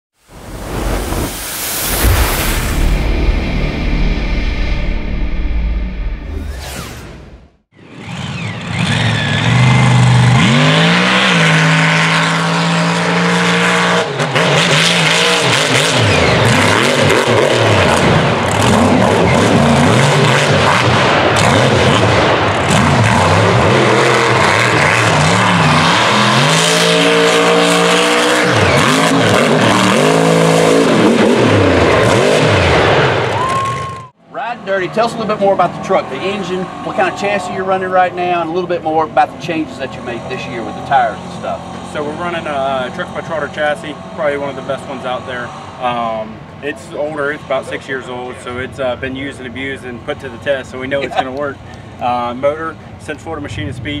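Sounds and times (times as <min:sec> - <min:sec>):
racing engine revving hard: 0:00.7 - 0:33.3.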